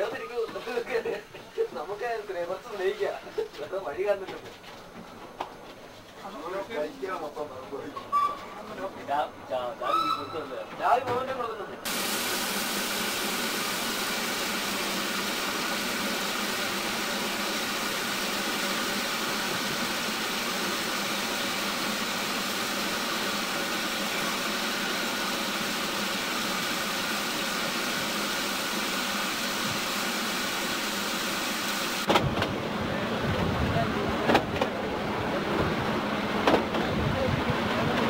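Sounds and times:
steam locomotive hissing: 0:11.8 - 0:32.2.

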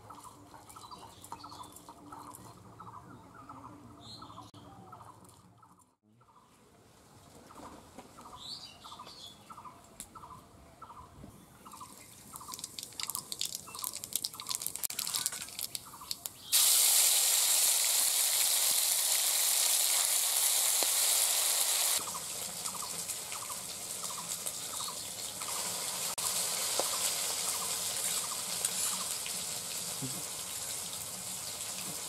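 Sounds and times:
bird chirping: 0:08.2 - 0:16.6
seeds crackling in hot oil: 0:11.8 - 0:32.0
paste sizzling in hot oil: 0:12.5 - 0:32.0.

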